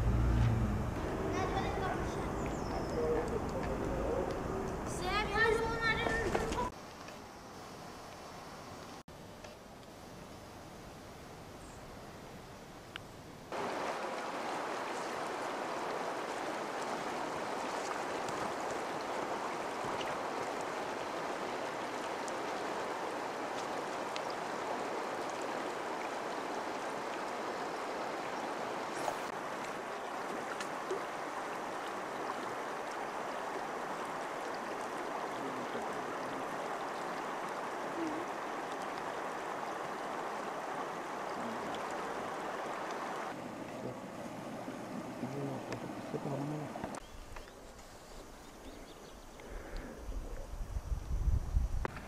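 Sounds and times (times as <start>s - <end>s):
river water rushing: 0.0s - 6.9s, 13.5s - 47.0s.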